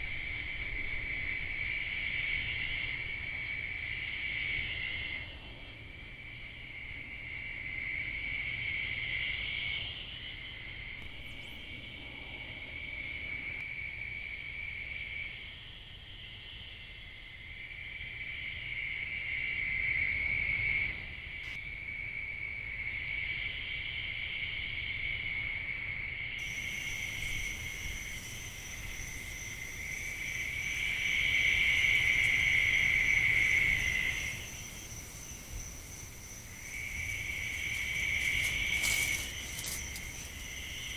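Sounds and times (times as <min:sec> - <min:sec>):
insects trilling: 0:00.0 - 0:40.9.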